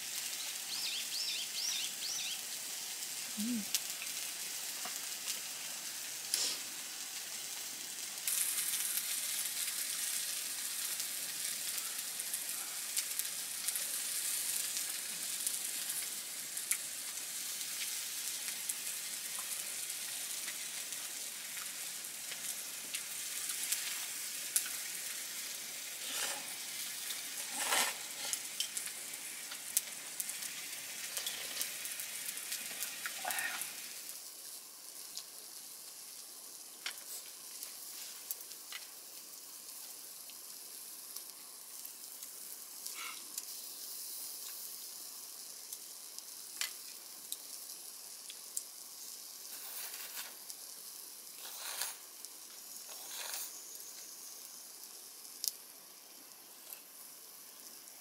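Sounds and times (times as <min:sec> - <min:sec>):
food sizzling in a frying pan: 0:00.0 - 0:58.0.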